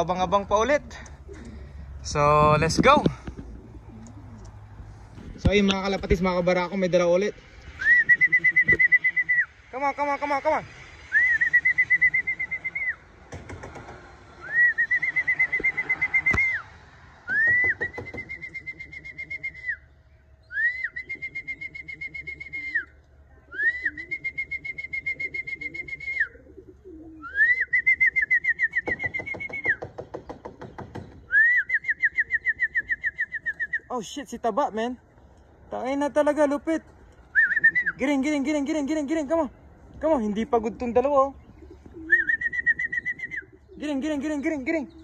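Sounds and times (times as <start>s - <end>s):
pigeons cooing: 0.7s - 2.0s, 3.0s - 5.3s, 7.4s - 9.7s, 10.7s - 33.9s, 36.8s - 45.0s
person's trilled whistle: 7.8s - 9.5s, 11.1s - 13.0s, 14.4s - 16.7s, 17.3s - 19.9s, 20.5s - 26.4s, 27.2s - 29.8s, 31.3s - 33.9s, 37.3s - 38.0s, 42.1s - 43.5s.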